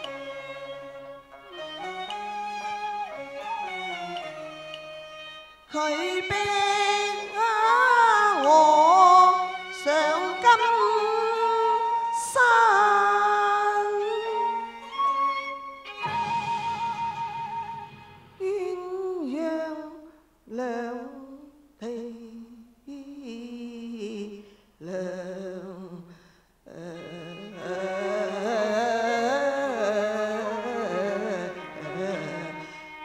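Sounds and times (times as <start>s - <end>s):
accompanying instruments: 0.0s - 7.8s, 14.0s - 19.2s
person singing opera into microphone: 5.7s - 14.7s, 18.4s - 33.0s.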